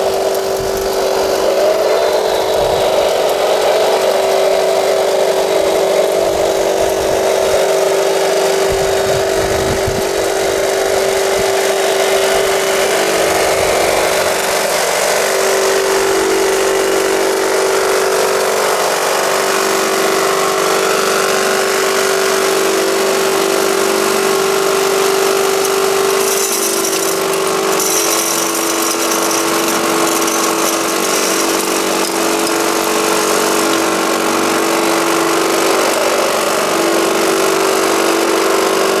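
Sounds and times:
wheels over gravel: 0.0 - 10.9, 19.9 - 38.5
model loader mechanical whine: 0.0 - 38.3.

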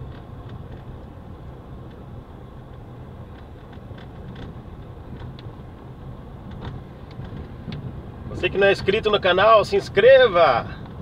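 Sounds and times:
vehicle rumbling on dirt road: 0.0 - 11.0
small clicks and rattles: 2.7 - 5.6.

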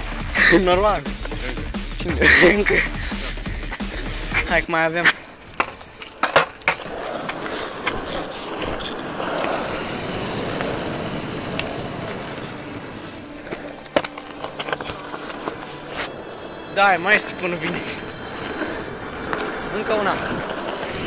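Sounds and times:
skateboard wheels rolling on asphalt: 2.3 - 21.0
skateboard clacks: 5.6 - 15.7, 19.2 - 21.0.

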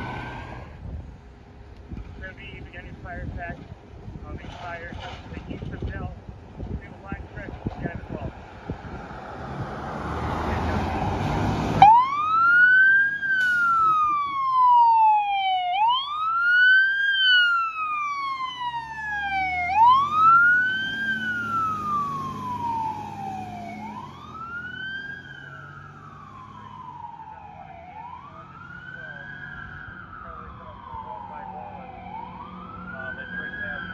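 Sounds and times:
truck engine: 0.0 - 33.9
fire engine wail siren: 7.1 - 33.9.

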